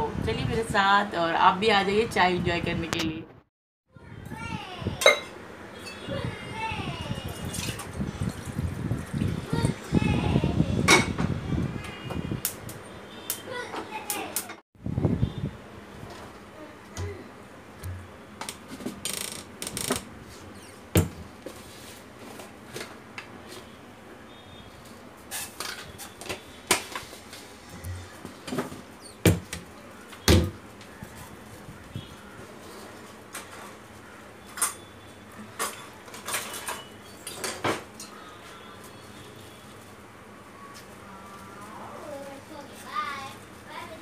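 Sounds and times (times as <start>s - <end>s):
kitchen utensils clattering: 5.0s - 6.0s, 35.5s - 38.1s.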